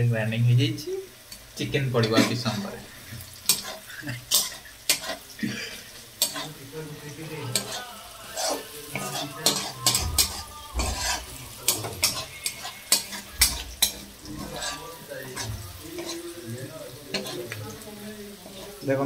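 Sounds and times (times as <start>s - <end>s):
onions sizzling in oil: 0.0s - 19.0s
metal spatula scraping a wok: 2.0s - 5.3s, 6.1s - 6.7s, 7.4s - 17.6s, 18.4s - 18.8s.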